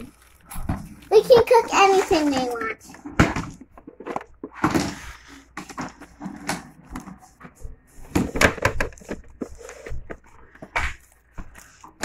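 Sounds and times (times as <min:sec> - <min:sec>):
plastic toy knocks and clatters: 0:08.1 - 0:10.2.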